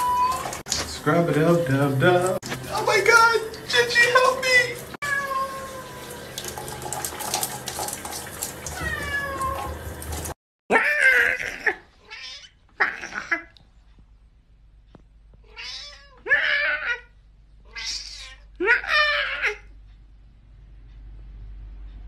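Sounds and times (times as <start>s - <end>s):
cat meowing: 0.0s - 0.6s, 5.0s - 6.2s, 8.7s - 9.8s, 10.7s - 13.4s, 15.4s - 17.1s, 17.7s - 19.7s.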